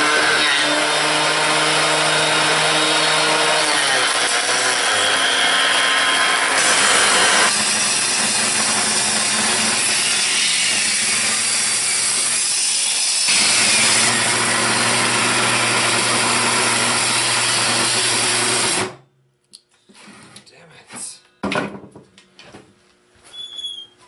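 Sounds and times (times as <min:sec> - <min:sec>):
saw motor hum: 0:00.0 - 0:18.9
table saw cutting wood: 0:00.0 - 0:19.0.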